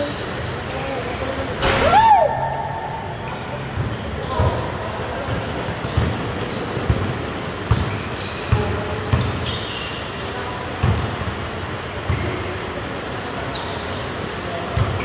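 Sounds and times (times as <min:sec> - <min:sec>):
sneaker squeaks: 0:00.0 - 0:15.0
basketball bouncing on court: 0:05.3 - 0:09.6, 0:10.8 - 0:11.4, 0:14.8 - 0:15.0.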